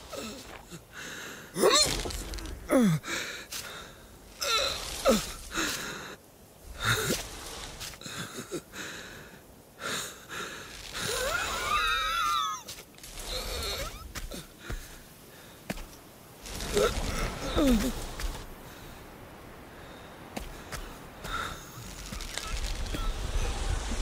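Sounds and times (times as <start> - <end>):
breathy sounds: 0.0 - 11.8, 16.4 - 19.1, 19.7 - 23.8.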